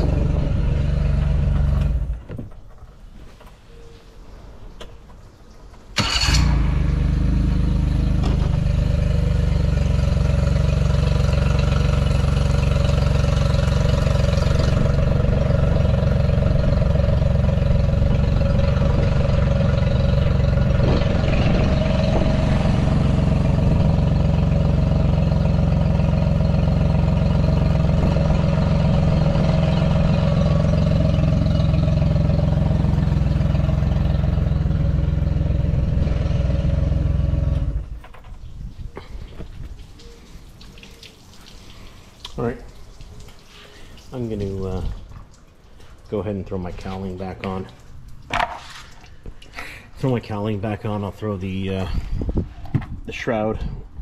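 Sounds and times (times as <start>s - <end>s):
outboard motor running: 0.0s - 2.2s, 6.2s - 38.0s.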